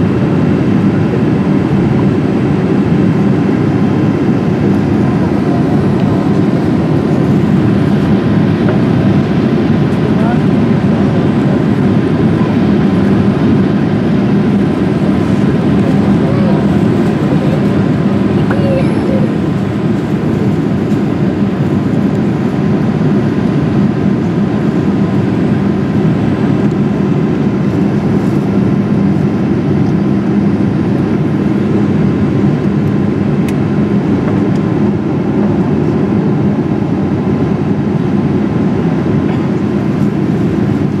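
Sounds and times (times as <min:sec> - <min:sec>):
airplane cabin noise: 0:00.0 - 0:41.0.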